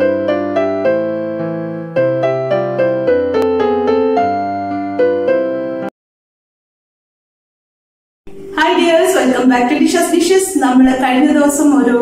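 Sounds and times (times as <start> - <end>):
electric piano melody: 0.0 - 5.9.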